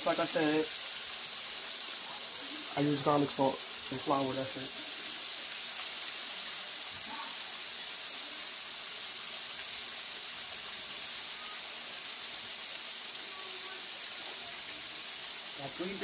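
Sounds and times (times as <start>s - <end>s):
shrimp sizzling in hot oil: 0.0s - 16.0s.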